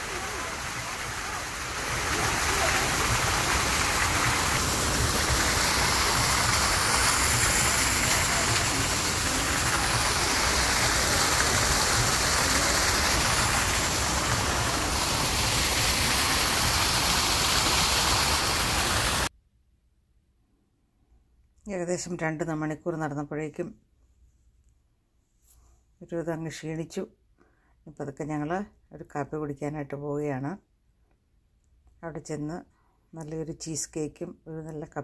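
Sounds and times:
steady rushing noise: 0:00.0 - 0:19.3.

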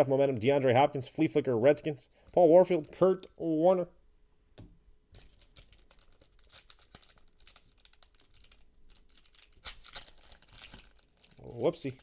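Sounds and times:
wrapper crinkling and tearing: 0:05.2 - 0:12.0.

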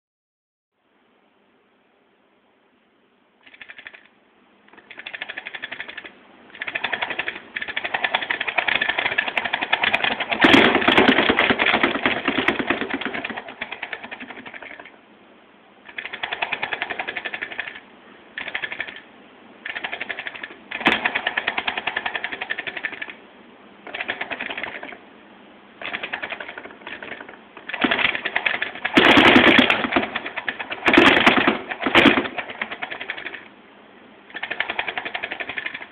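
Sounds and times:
joystick motors rattling buzz: 0:03.4 - 0:04.1, 0:04.7 - 0:14.9, 0:15.9 - 0:17.8, 0:18.4 - 0:19.0, 0:19.6 - 0:23.2, 0:25.8 - 0:33.5, 0:34.3 - 0:35.9.

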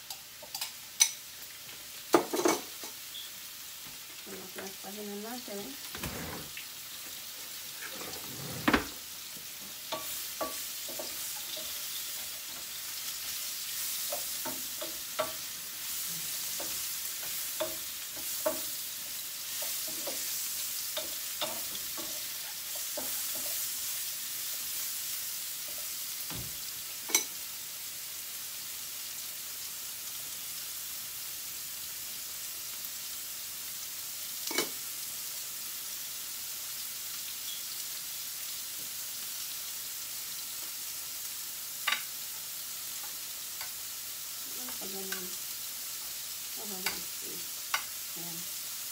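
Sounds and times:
mushrooms sizzling in a pan: 0:00.0 - 0:48.9
wooden spatula scraping a pan: 0:07.2 - 0:09.0.

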